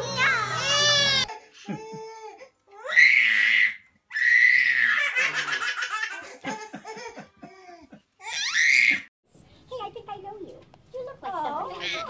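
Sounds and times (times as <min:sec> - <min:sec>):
baby laughing: 0:04.9 - 0:08.4.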